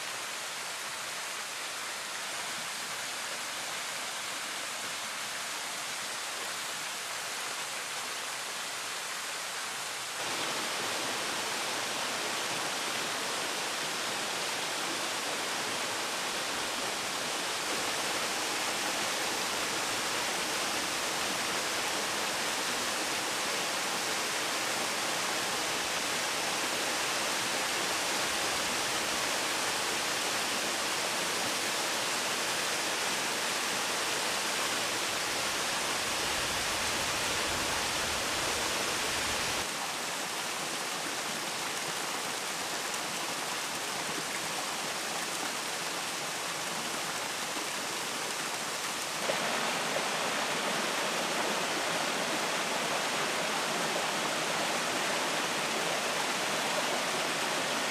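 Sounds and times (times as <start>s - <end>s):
waterfall rushing: 10.0s - 40.3s, 47.2s - 57.9s.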